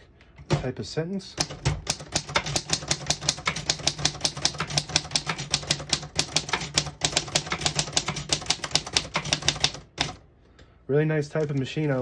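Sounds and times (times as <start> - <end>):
typewriter typing: 1.4 - 10.2, 11.4 - 12.0.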